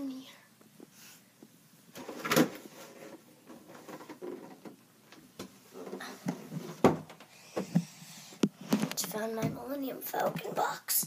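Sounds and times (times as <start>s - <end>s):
objects knocked and rustling: 1.9s - 7.8s.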